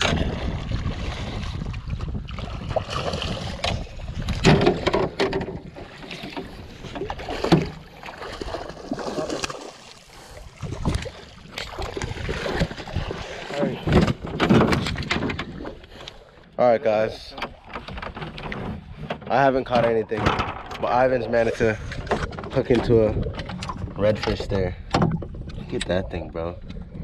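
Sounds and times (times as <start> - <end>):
wind buffeting microphone: 0.0 - 7.5, 17.8 - 27.0
fish thrashing and splashing: 0.0 - 16.2
knocks and handling noises: 4.3 - 7.8, 13.8 - 15.9.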